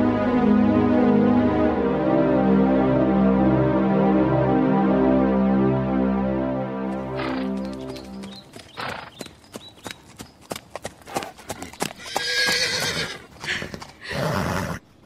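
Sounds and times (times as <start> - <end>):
held synth chord: 0.0 - 8.4
horse hooves clip-clopping: 6.9 - 14.2
horse whinnying: 12.0 - 14.8.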